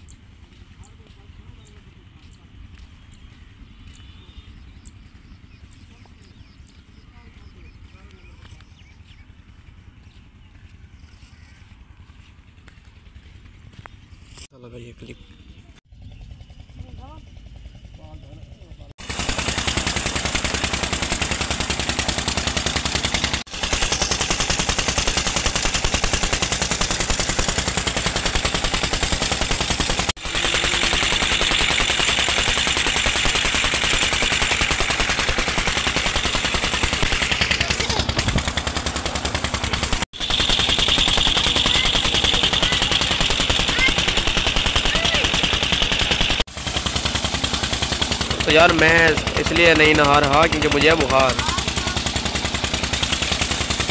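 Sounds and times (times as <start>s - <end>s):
pump engine chugging: 0.0s - 14.4s, 15.2s - 53.9s
water gushing from pipe: 19.0s - 37.5s, 38.2s - 53.9s.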